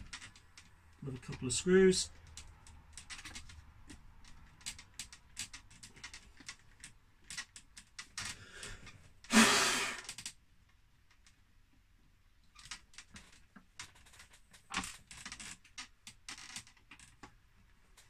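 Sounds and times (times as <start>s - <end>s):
person exhaling: 8.4s - 10.1s.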